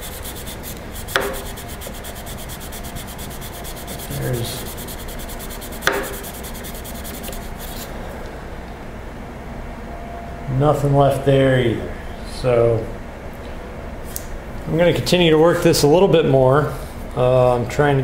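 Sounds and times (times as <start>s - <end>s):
metal scraping on sandpaper: 0.0s - 7.9s.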